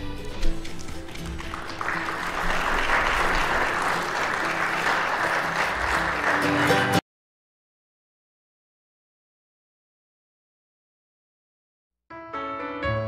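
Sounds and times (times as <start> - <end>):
applause: 1.0 - 7.0
instrumental music with held notes: 12.1 - 13.0.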